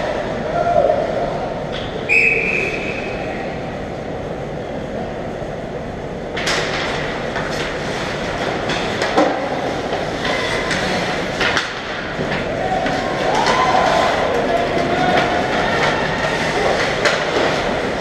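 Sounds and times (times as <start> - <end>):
arena noise rumble: 0.0 - 18.0
hockey sticks and puck clacking: 6.3 - 18.0.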